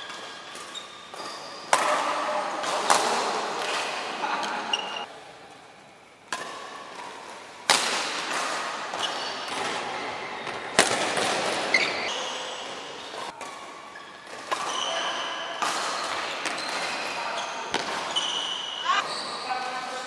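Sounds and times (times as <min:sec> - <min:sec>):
sports shoes squeaking on floor: 0:00.0 - 0:02.3, 0:04.2 - 0:05.1, 0:11.7 - 0:20.0
rackets hitting shuttlecock: 0:00.0 - 0:05.1, 0:06.2 - 0:18.9.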